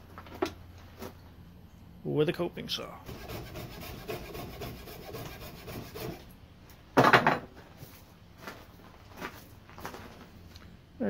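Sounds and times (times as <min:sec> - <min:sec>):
coping saw cutting wood: 0:03.1 - 0:06.3.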